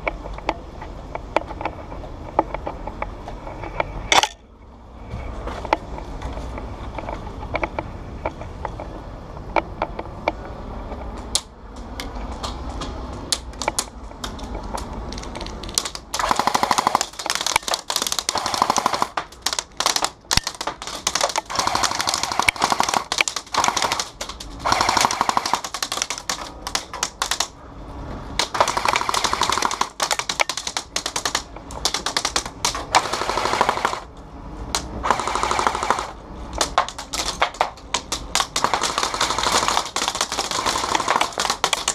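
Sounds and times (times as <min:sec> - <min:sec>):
airsoft rifle full-auto bursts: 0:16.2 - 0:27.5, 0:28.4 - 0:34.1, 0:35.0 - 0:41.9.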